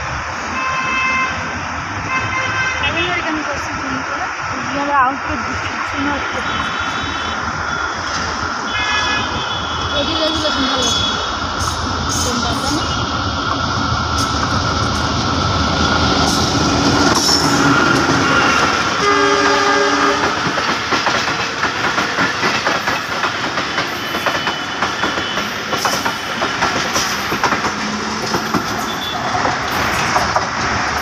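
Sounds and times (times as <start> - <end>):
train rumbling: 0.0 - 31.0
train horn: 0.5 - 1.4, 8.7 - 11.3, 18.4 - 20.5
wheels clattering over rail joints: 12.1 - 31.0.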